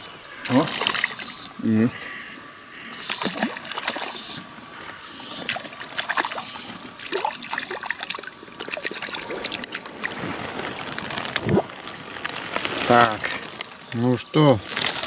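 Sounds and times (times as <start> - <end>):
fish splashing in water: 0.0 - 1.6, 2.8 - 13.8
water drips and plops: 0.0 - 1.6, 3.0 - 12.4.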